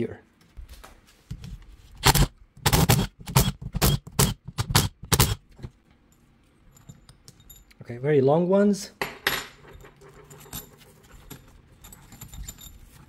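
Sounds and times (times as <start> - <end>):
impact driver hammering bolts: 2.0 - 5.4.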